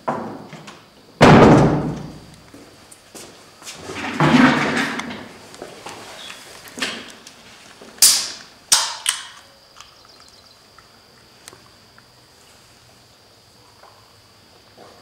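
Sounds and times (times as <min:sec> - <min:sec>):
can tab metallic clicks: 0:08.0 - 0:10.4.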